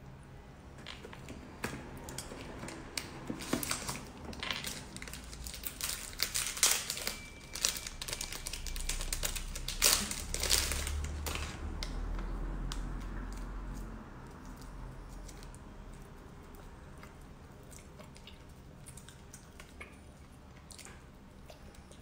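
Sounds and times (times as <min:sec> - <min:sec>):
plastic wrappers crinkling: 0:02.0 - 0:15.6.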